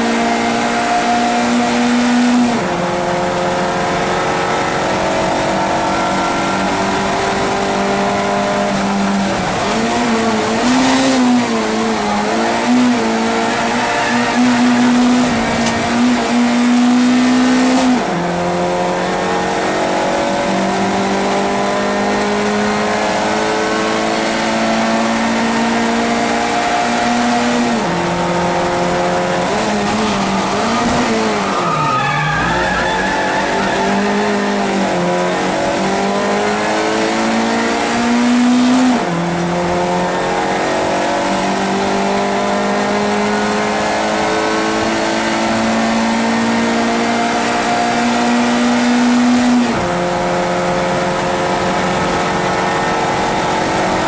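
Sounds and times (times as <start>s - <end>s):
race car engine: 0.0s - 54.0s
tyres squealing: 29.5s - 34.6s.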